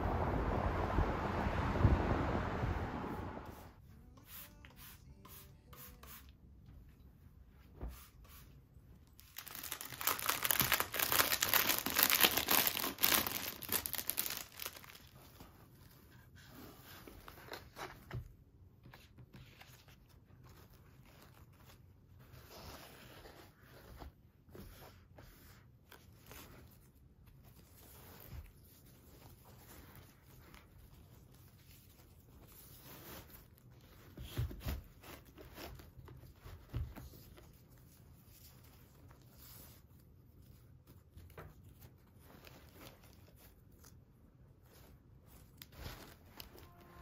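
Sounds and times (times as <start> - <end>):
plastic wrapping crinkling: 9.0 - 16.0
fabric gift bag rustling: 9.1 - 18.0.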